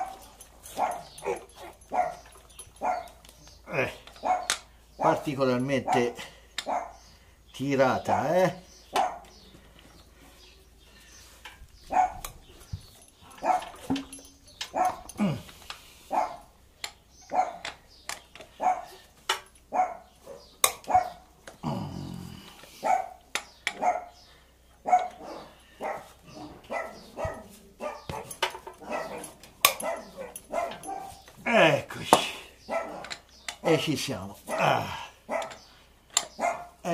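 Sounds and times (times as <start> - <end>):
dog barking: 0.0 - 3.2, 4.2 - 4.6, 5.8 - 7.0, 8.9 - 9.3, 11.9 - 12.3, 13.4 - 13.8, 14.7 - 15.1, 16.1 - 16.5, 17.3 - 17.7, 18.6 - 19.0, 19.7 - 21.3, 22.8 - 23.2, 23.8 - 24.2, 24.8 - 31.2, 32.7 - 33.1, 34.5 - 35.6, 36.4 - 36.8.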